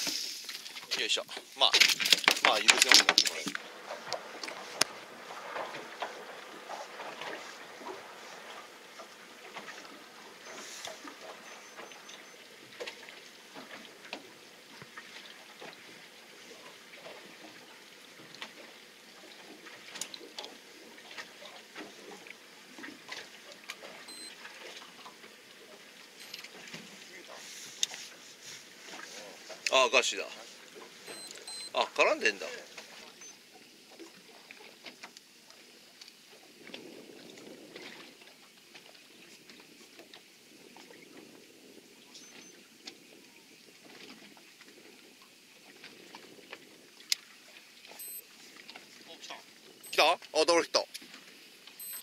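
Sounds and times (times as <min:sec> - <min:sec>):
water lapping against boat hull: 0:00.0 - 0:52.0
brief high beep: 0:11.4 - 0:12.4, 0:24.1 - 0:24.3, 0:26.2 - 0:26.5, 0:31.1 - 0:31.8, 0:48.0 - 0:48.2, 0:49.9 - 0:50.1, 0:51.8 - 0:52.0.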